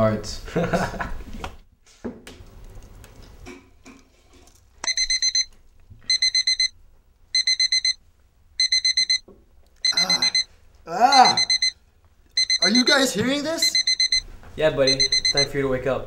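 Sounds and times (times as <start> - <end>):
alarm clock beeping: 4.8 - 5.5, 6.1 - 6.7, 7.4 - 8.0, 8.6 - 9.2, 9.8 - 10.5, 11.1 - 11.8, 12.4 - 14.2, 14.8 - 16.0.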